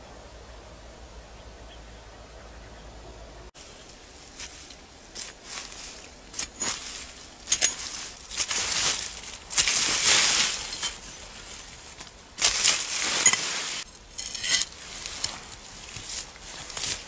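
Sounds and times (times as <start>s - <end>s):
leaf litter rustling: 3.6s - 17.0s.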